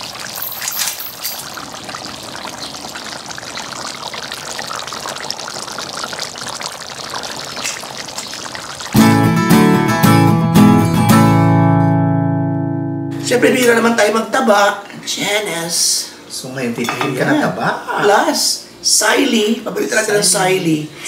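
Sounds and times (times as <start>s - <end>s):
stew bubbling in a wok: 0.0s - 9.1s
guitar music: 9.0s - 13.4s.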